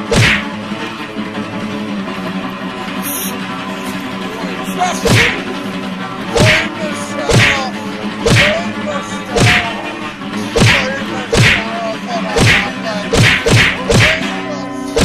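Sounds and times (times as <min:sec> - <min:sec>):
punches landing on a body: 0:00.0 - 0:00.5, 0:06.4 - 0:06.6, 0:08.3 - 0:08.5, 0:09.4 - 0:09.6, 0:11.4 - 0:11.6, 0:12.4 - 0:12.6, 0:13.2 - 0:14.2
background music: 0:00.0 - 0:15.0.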